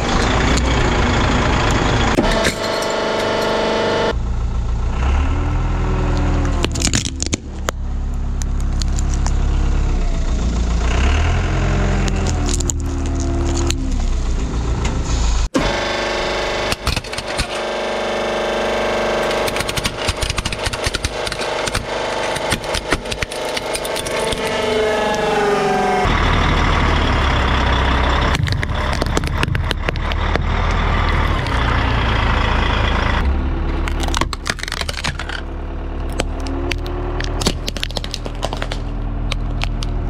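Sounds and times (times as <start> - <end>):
car engine rumbling: 0.0 - 40.0
hydraulic press whine: 0.0 - 40.0
plastic toy cracking: 6.6 - 7.8, 8.4 - 9.4, 12.1 - 13.9, 19.3 - 24.6, 28.3 - 30.4, 33.8 - 40.0.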